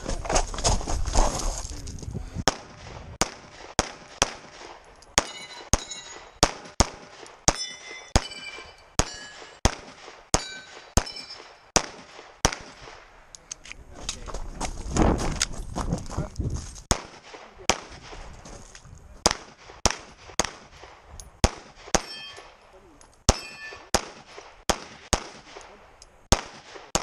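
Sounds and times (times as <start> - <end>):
pistol shots: 2.4 - 13.0, 16.9 - 18.2, 19.2 - 22.6, 23.3 - 27.0
steel targets clanging: 5.1 - 6.8, 7.5 - 9.6, 10.3 - 11.8, 22.0 - 22.6, 23.3 - 23.9.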